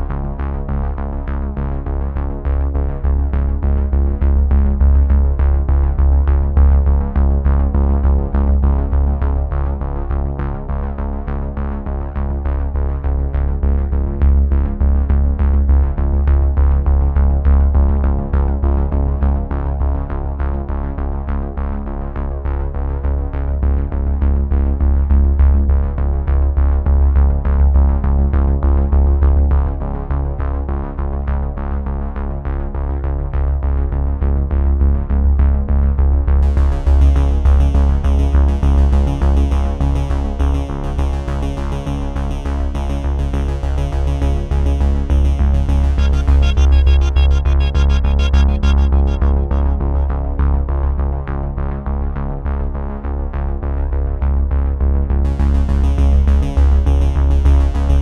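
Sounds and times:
electronic music with bass beat: 36.4 - 51.2, 55.3 - 58.0.

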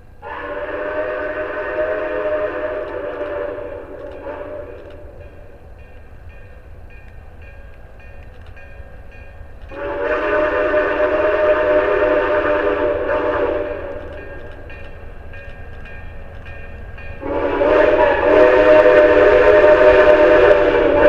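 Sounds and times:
steam whistle blowing: 0.2 - 5.2, 9.7 - 14.4, 17.2 - 21.0.

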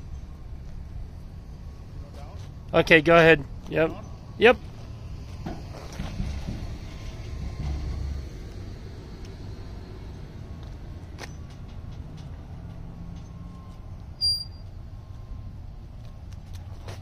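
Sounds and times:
sharp high squeak: 14.2 - 14.7.

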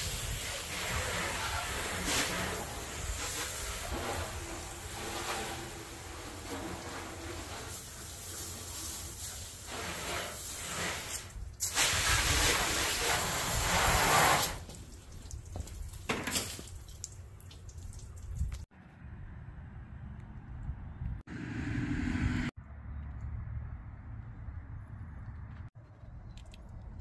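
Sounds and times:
water spraying from garden hose: 0.0 - 18.7.

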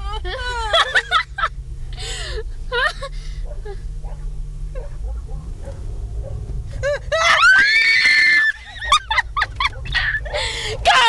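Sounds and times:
car rumble: 0.0 - 11.0
high-pitched human scream: 7.2 - 8.6.

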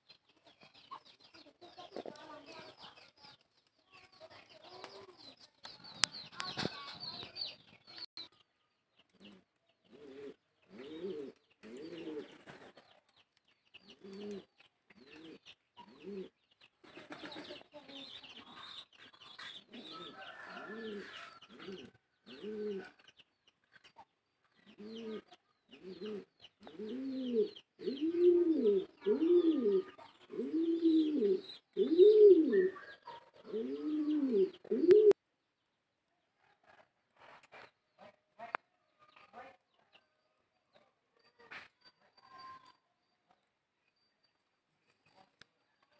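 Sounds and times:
pigeon cooing: 9.1 - 12.7, 13.9 - 16.4, 19.6 - 23.0, 24.6 - 35.2
faint high chirping: 39.0 - 45.9.

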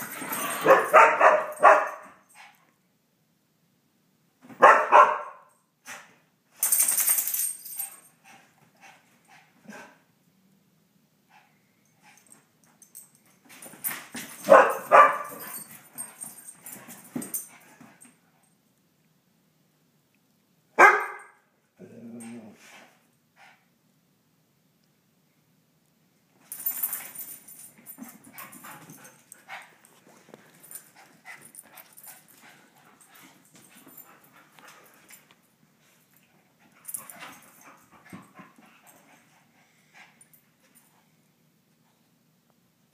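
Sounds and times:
dogs barking: 0.6 - 2.1, 4.6 - 5.4, 14.4 - 15.5, 20.8 - 21.3.

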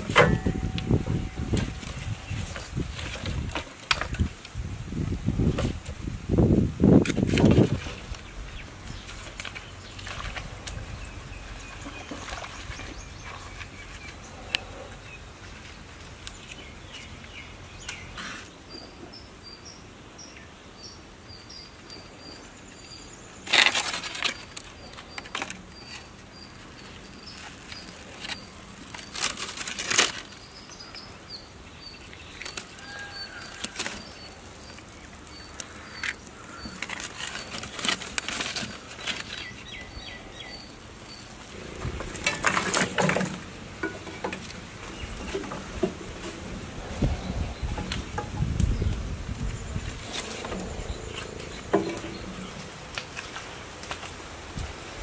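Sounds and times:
sticks and leaves rustling: 0.0 - 19.0, 21.8 - 55.0
outdoor ambience: 0.0 - 55.0
bird chirping: 38.8 - 41.6, 46.8 - 53.3.

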